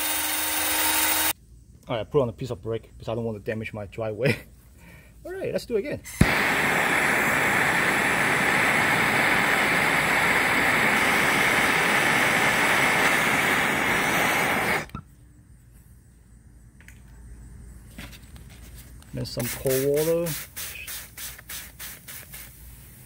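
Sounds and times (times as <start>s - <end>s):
gas torch ignition click: 6.1s - 15.0s
torch flame hissing: 6.1s - 15.0s, 19.4s - 23.0s.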